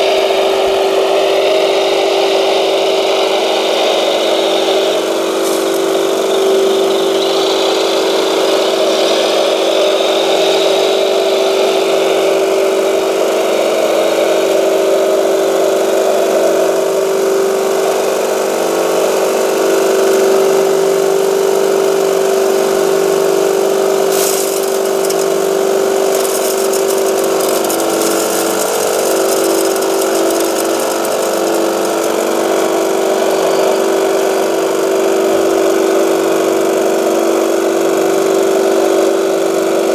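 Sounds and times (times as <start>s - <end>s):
toy motor whine and hum: 2.3s - 35.8s
gravel rattling onto screen: 5.3s - 6.2s, 24.1s - 33.1s.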